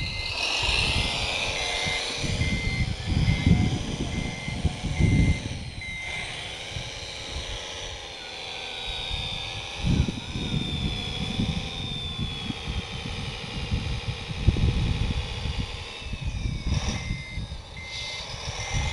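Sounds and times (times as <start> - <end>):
short reversing beeps: 0.0 - 6.9, 16.1 - 18.9
wind rumbling on microphone: 0.0 - 8.0, 8.9 - 18.9
toy loader motors whining: 0.0 - 18.9.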